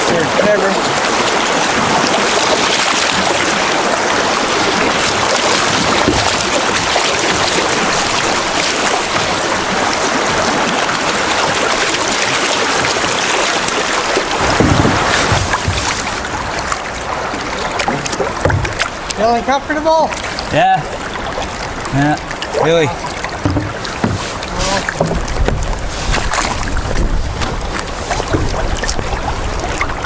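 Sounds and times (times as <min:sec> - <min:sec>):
rushing water of river rapid: 0:00.0 - 0:30.0
low buffeting: 0:14.0 - 0:30.0.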